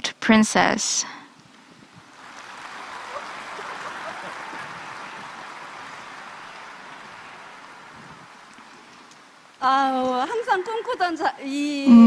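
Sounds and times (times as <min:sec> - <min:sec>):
audience applauding: 0:02.1 - 0:09.3.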